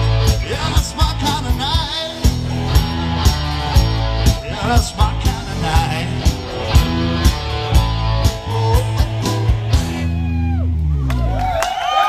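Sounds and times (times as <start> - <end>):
live rock band playing: 0.0 - 11.5.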